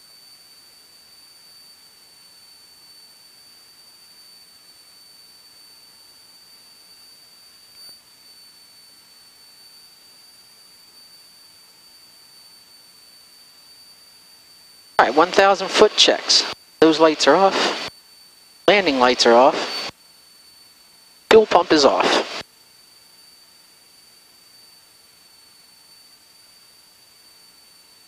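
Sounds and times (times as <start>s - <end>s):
intercom hiss: 15.0s - 17.9s, 18.7s - 19.9s, 21.3s - 22.4s.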